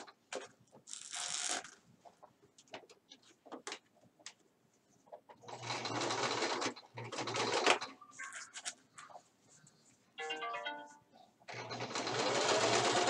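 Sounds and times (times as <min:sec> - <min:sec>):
sewing machine stitching: 0:05.5 - 0:08.0, 0:11.5 - 0:13.0.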